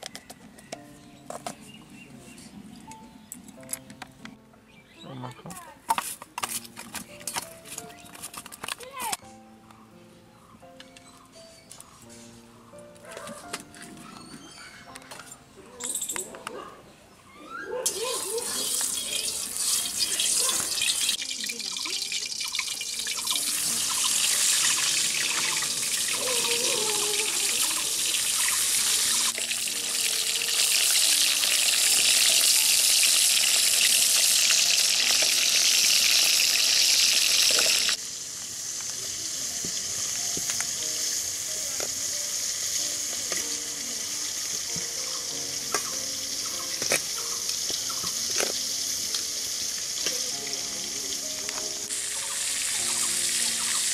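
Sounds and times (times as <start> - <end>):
faint background music: 0.0 - 53.9
food frying in a wok: 18.5 - 53.9.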